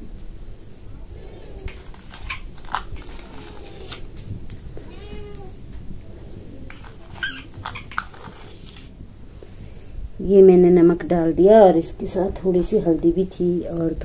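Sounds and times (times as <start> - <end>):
cat meowing: 4.8 - 5.7.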